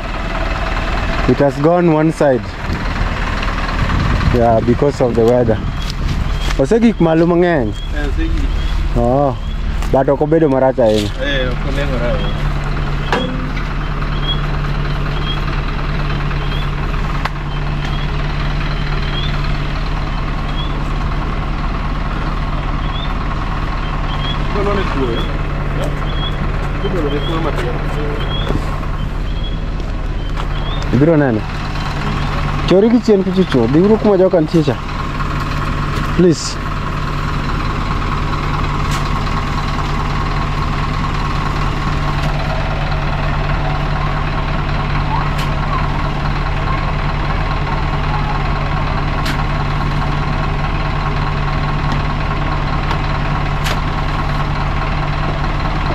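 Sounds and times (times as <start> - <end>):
heavy truck engine running: 0.0 - 55.9.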